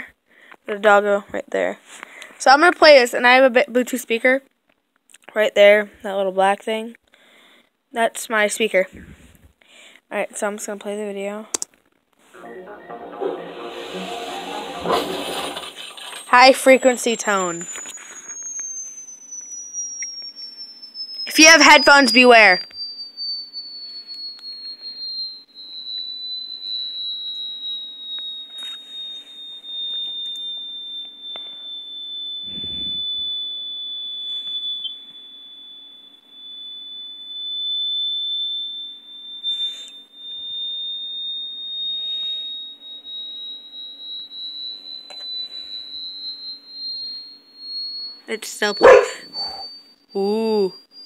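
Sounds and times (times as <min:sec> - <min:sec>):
high-pitched tone sliding in pitch: 0:12.4 - 0:51.0.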